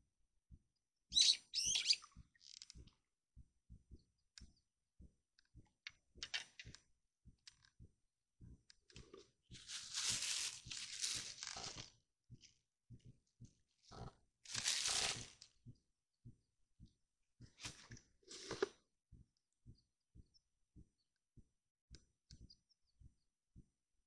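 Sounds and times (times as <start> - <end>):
small bird chirping: 1.1 - 2.9.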